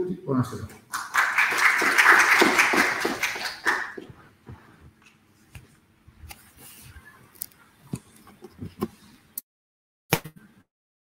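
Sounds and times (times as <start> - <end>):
audience applauding: 0.9 - 4.1.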